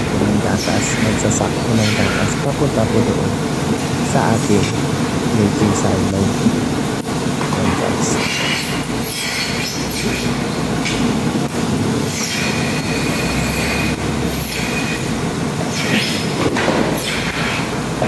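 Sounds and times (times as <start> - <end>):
high mechanical squeals: 0.0 - 3.1, 12.0 - 16.4
milking platform mechanical rumble: 0.0 - 18.0.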